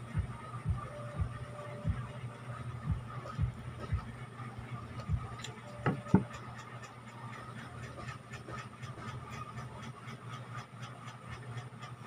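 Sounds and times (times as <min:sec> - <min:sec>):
steady low hum: 0:00.0 - 0:12.0
quiet chewing ticks: 0:04.9 - 0:12.0.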